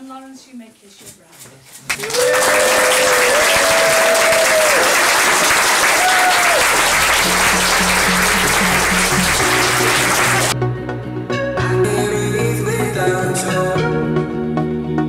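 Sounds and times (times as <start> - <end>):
guests applauding and cheering: 1.9 - 10.6
drawn-out whoops: 2.0 - 5.0, 5.8 - 6.9
music with steady bass beat: 6.9 - 15.0.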